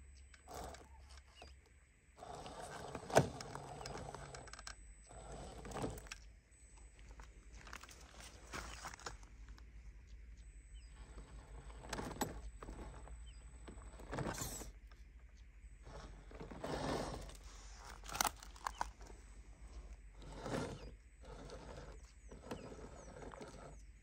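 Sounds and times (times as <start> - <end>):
tyres crunching over shale: 6.9 - 9.7, 15.8 - 23.8.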